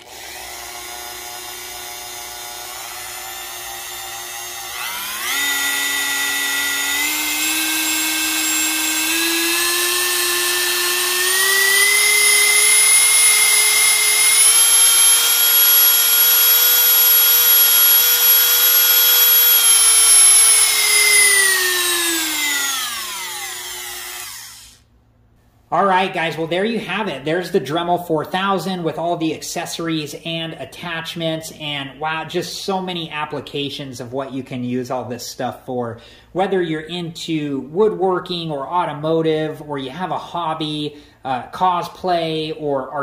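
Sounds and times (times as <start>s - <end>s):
rotary tool motor whine: 0.0s - 24.8s.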